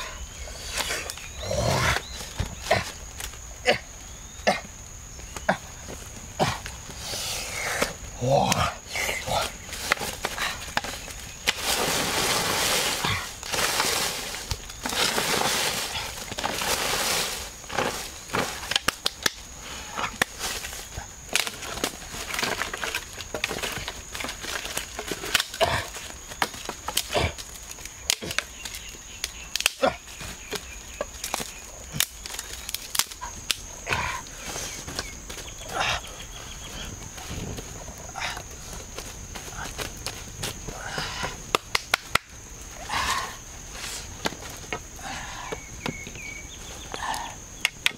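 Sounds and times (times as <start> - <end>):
branches scraping and rustling: 9.0 - 40.8
sticks cracking and snapping: 17.6 - 33.7, 41.5 - 42.4.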